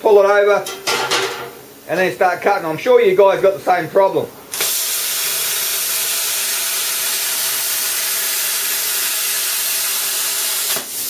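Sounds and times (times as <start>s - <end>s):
plasma cutter hissing: 4.5s - 11.0s.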